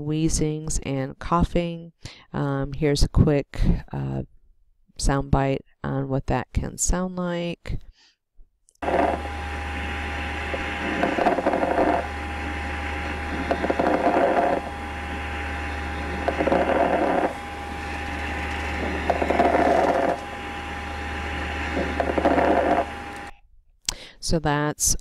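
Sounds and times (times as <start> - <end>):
breathing: 2.0 - 2.4, 7.9 - 8.2, 23.9 - 24.2
steady low hum: 8.8 - 23.4.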